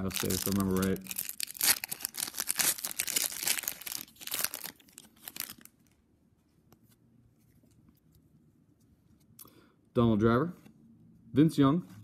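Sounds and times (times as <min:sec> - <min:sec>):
foil wrapper crinkling: 0:00.0 - 0:05.9.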